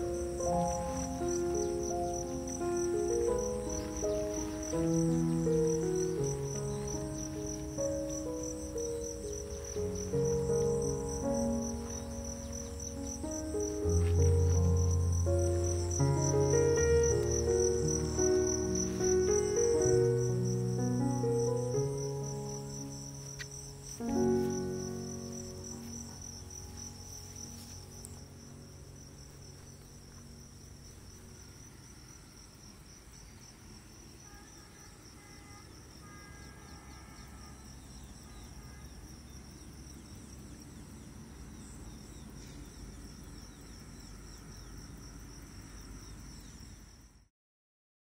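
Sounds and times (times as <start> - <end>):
music chord ringing: 0.0 - 32.4
faint low rumble: 0.0 - 33.2
insects chirring: 0.0 - 47.3.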